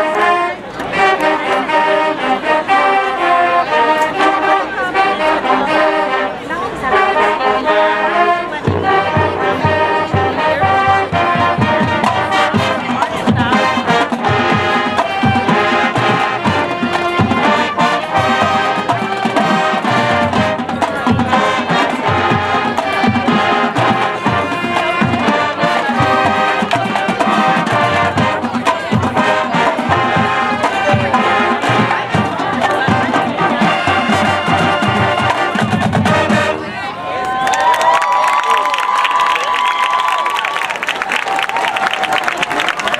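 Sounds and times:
marching band brass: 0:00.0 - 0:37.1
drumline percussion: 0:08.1 - 0:36.8.

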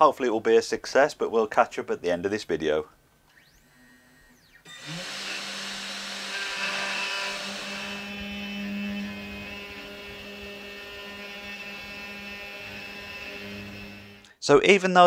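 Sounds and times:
spindle whine and hum: 0:03.3 - 0:14.3.

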